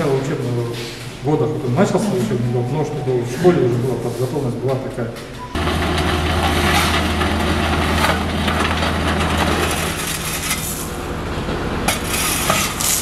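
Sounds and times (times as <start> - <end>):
diesel engine humming: 1.5 - 4.7, 5.6 - 13.0
wheels crunching gravel: 5.6 - 11.2, 11.9 - 13.0
shovels scraping crushed stone: 8.0 - 10.9, 11.9 - 13.0.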